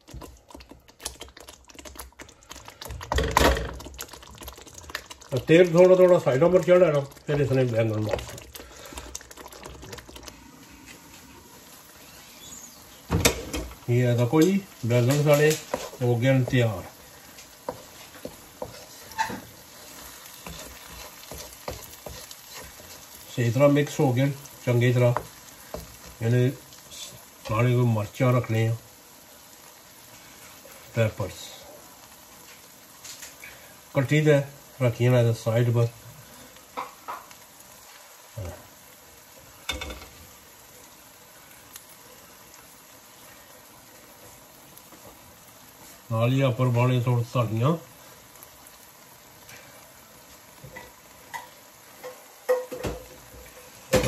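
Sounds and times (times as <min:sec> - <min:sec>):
spoon knocking and scraping pan: 0:00.0 - 0:05.3, 0:13.0 - 0:26.2, 0:36.7 - 0:37.4, 0:39.6 - 0:40.2, 0:50.6 - 0:54.0
quiet frying sizzle: 0:00.0 - 0:54.0.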